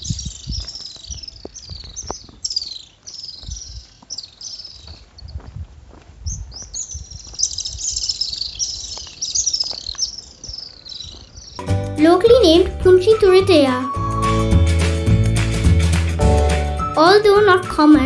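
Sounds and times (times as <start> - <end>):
swifts twittering: 0.0 - 5.4, 6.3 - 11.6.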